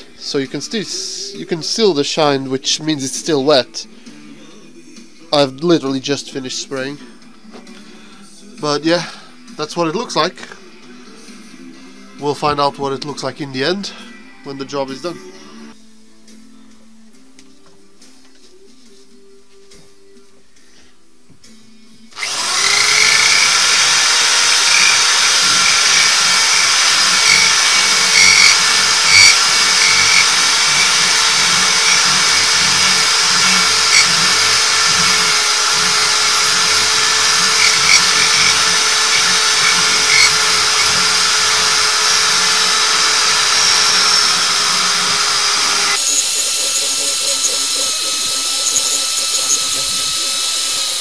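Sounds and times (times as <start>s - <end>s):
electric drill running: 22.1s - 51.0s.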